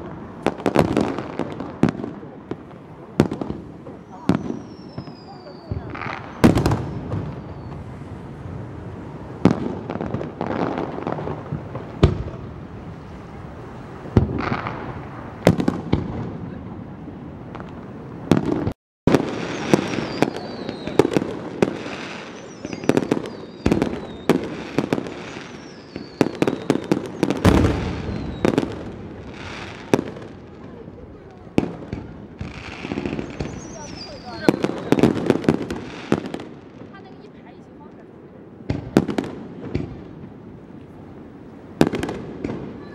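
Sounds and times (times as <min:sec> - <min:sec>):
fireworks booming: 0:00.0 - 0:42.9
fireworks crackling: 0:00.0 - 0:42.9
faint falling whistles: 0:04.1 - 0:07.8, 0:22.3 - 0:24.3.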